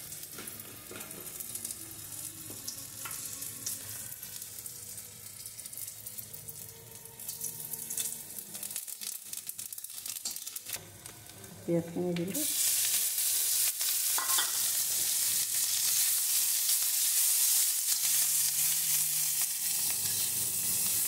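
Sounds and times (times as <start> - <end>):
food sizzling in hot oil: 0.0 - 21.0.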